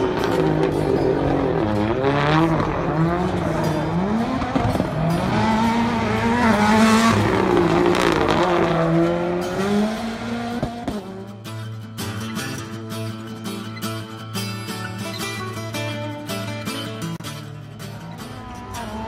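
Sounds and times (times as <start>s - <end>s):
car engine revving: 0.0s - 11.4s
music: 11.1s - 19.0s
tyre squeal: 14.7s - 15.6s.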